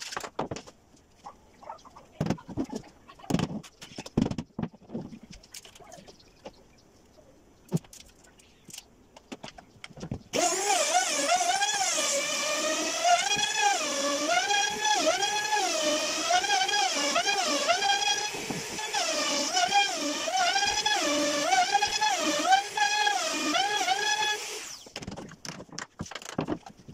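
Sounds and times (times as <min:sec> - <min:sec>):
router motor whine cutting wood: 0:10.4 - 0:24.9.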